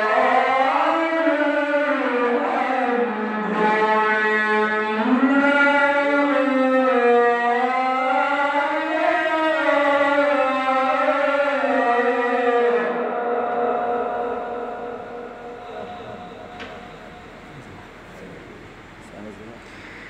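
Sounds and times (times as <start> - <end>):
man reciting through microphone: 0.0 - 14.1, 15.0 - 19.8.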